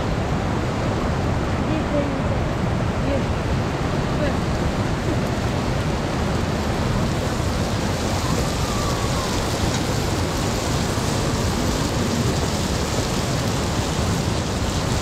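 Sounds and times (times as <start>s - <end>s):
fast river rushing: 0.0s - 15.0s.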